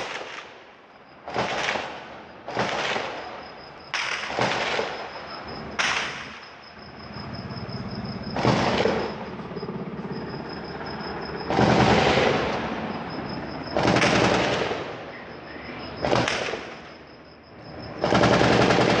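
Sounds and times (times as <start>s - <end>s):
automatic gunfire bursts: 1.3s - 3.4s, 4.0s - 5.1s, 8.3s - 9.2s, 11.5s - 12.5s, 13.7s - 15.0s, 16.0s - 16.8s, 18.0s - 19.0s.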